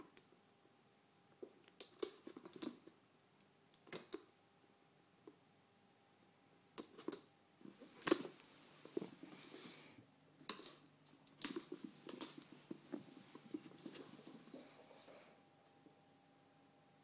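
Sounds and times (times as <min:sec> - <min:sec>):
cat paws pattering and scrabbling: 0:07.0 - 0:15.4.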